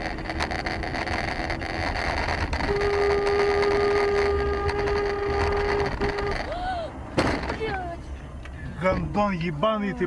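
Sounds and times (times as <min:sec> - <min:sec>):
car road and engine rumble: 0:00.0 - 0:10.0
car horn honking: 0:02.6 - 0:06.6.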